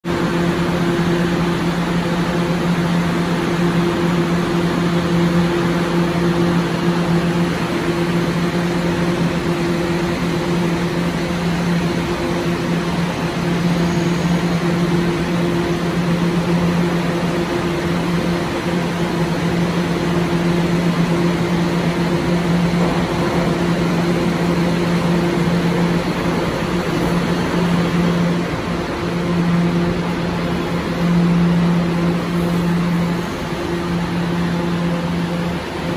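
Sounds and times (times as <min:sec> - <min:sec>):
subway car droning hum: 0:00.0 - 0:35.9.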